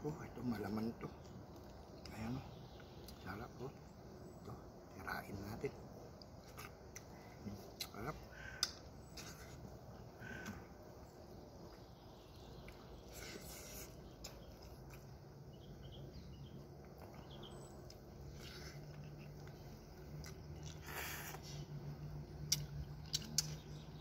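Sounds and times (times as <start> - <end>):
faint low hum: 0.0 - 24.0
person chewing: 16.8 - 21.8, 22.4 - 23.6.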